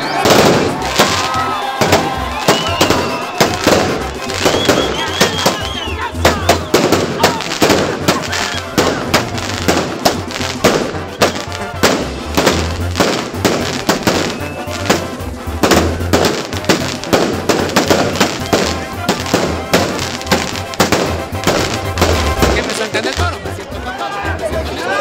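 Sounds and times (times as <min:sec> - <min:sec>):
fireworks banging: 0:00.0 - 0:23.4.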